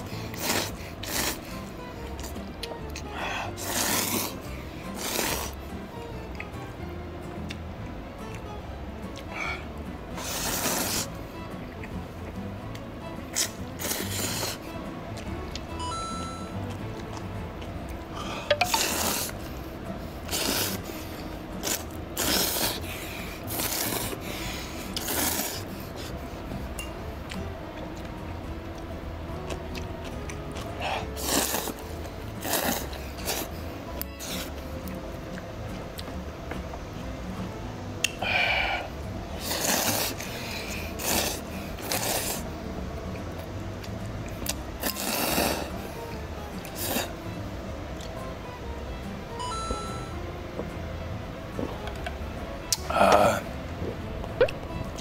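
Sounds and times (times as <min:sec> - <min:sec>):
person slurping noodles: 0:00.0 - 0:01.6, 0:03.0 - 0:05.6, 0:10.2 - 0:11.2, 0:13.3 - 0:14.7, 0:18.1 - 0:19.5, 0:20.2 - 0:26.2, 0:30.8 - 0:33.6, 0:38.2 - 0:42.5, 0:44.8 - 0:45.8, 0:46.6 - 0:47.2.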